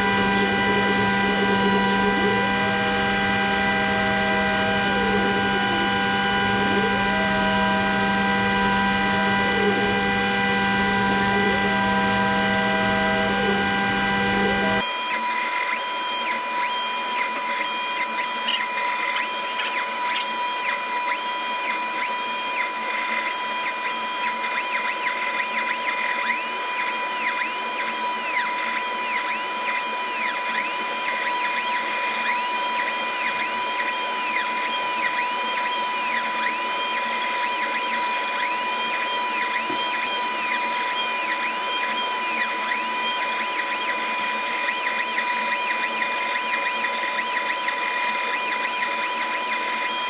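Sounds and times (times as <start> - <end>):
laser cutter fan whir: 0.0 - 50.0
rising and falling whines: 14.8 - 50.0.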